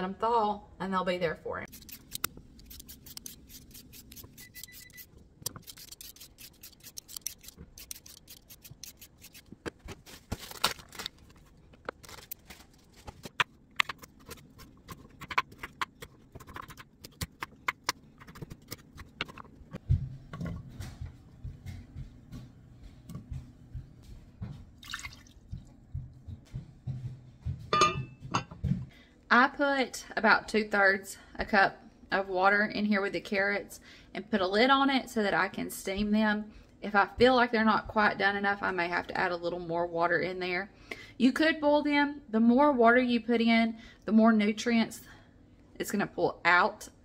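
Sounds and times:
utensils clicking and scraping: 1.7 - 9.7.

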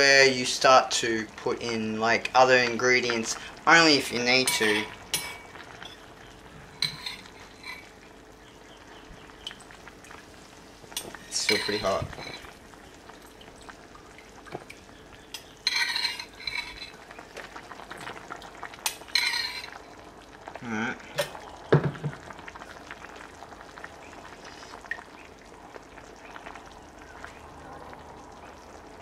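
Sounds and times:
spoon scraping ceramic bowl: 6.8 - 7.9, 15.7 - 17.0, 19.2 - 19.7.

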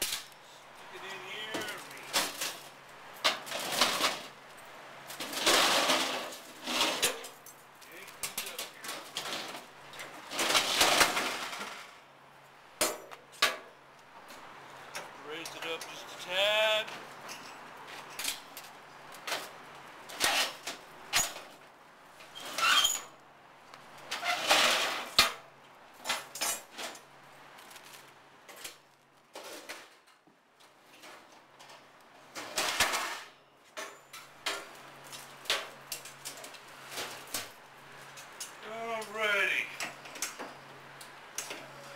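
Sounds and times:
metal racks rattling and clattering: 1.4 - 4.3, 5.1 - 7.4, 8.2 - 12.0, 31.0 - 37.5.

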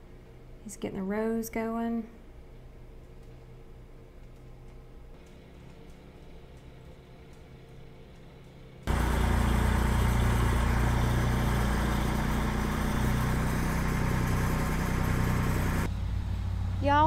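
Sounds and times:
tractor engine running: 8.9 - 17.0.

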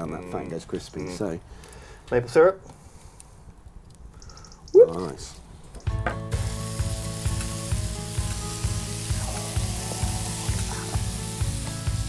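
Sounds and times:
bacon sizzling: 5.9 - 12.0
background music with bass beat: 7.8 - 12.0.

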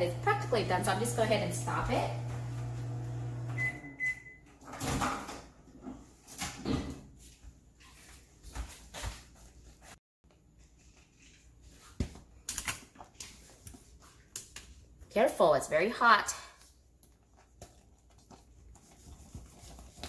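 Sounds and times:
microwave oven humming: 0.0 - 4.8.

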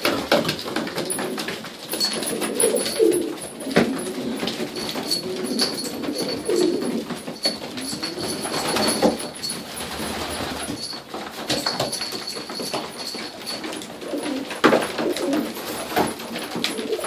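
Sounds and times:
pigeons cooing: 0.4 - 9.3, 13.4 - 17.0.

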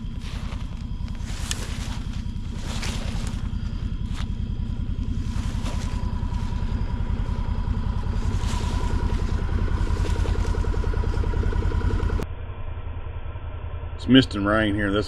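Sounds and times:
carcass dragged through brush: 0.0 - 11.4
small engine running: 0.0 - 15.0
thin steady whine: 0.0 - 15.0.

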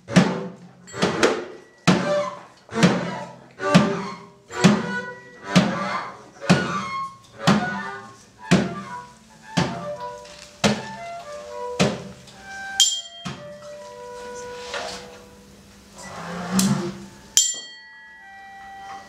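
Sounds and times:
heavy percussion hits ringing: 0.1 - 5.8, 12.7 - 13.7, 17.4 - 19.0.

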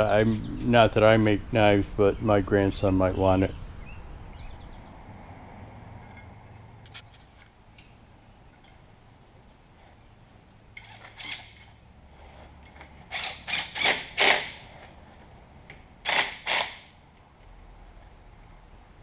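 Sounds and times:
hand tool mechanical bursts: 13.1 - 14.8, 16.0 - 17.0.

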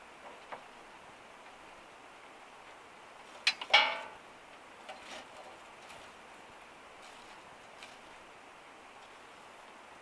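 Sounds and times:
faint steady hiss: 0.0 - 10.0
metallic clank with ringing: 3.5 - 4.2.

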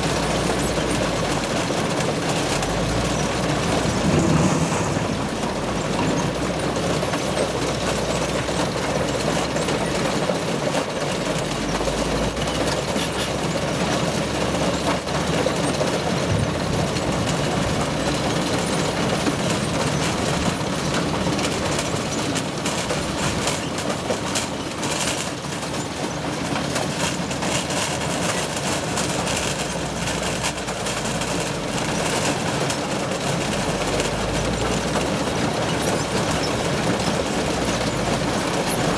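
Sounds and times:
machine conveyor din: 0.0 - 38.9.

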